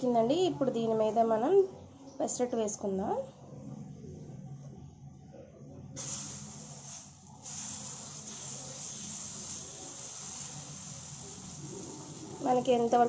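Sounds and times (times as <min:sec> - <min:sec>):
batter sizzling on hot griddle: 0:06.0 - 0:13.0.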